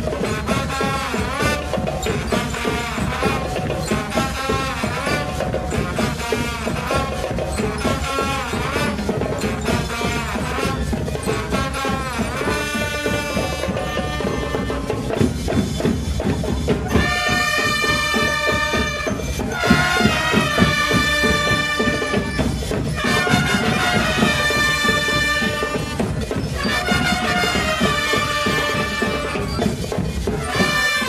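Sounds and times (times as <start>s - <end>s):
steady drum beat: 0.0s - 31.0s
brass instruments holding chords: 17.0s - 22.4s, 23.0s - 29.6s, 30.3s - 31.0s.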